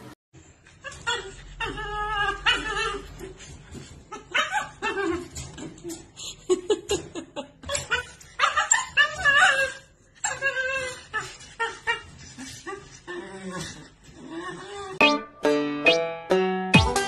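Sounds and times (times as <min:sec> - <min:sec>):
dog crying high-pitched: 0:00.7 - 0:05.6, 0:07.6 - 0:13.2.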